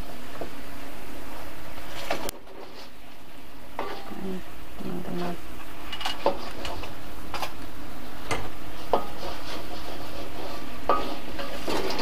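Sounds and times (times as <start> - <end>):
spatula scraping a wok: 3.8 - 4.3, 8.1 - 12.0.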